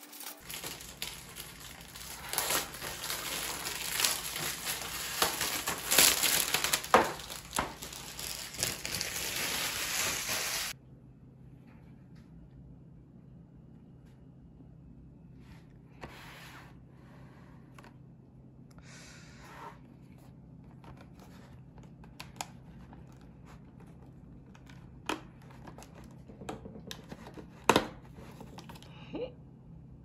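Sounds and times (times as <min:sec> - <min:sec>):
cardboard rustling under hands: 0:00.2 - 0:10.8.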